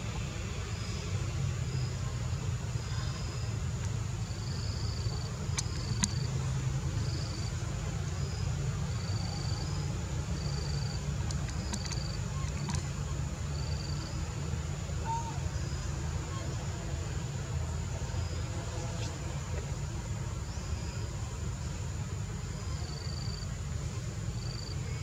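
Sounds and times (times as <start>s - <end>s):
high insect whine: 0.1s - 25.0s
insect chirps: 0.2s - 25.0s
faint sharp clicks: 3.8s - 4.0s, 5.5s - 6.3s, 11.2s - 12.9s.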